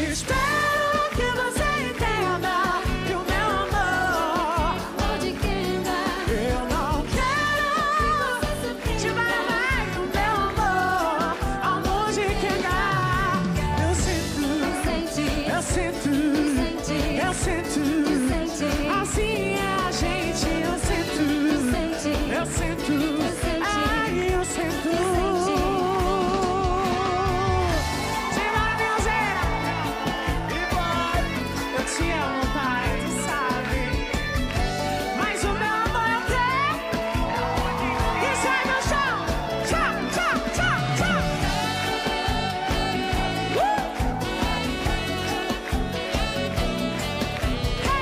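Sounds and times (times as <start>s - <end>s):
band playing dance beat: 0.0s - 48.0s
lead vocal singing: 0.0s - 48.0s.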